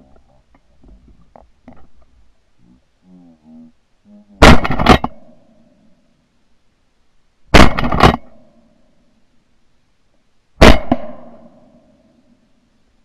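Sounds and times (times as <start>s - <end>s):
shotgun blasts with echo: 4.4s - 5.3s, 7.5s - 8.4s, 10.6s - 11.7s.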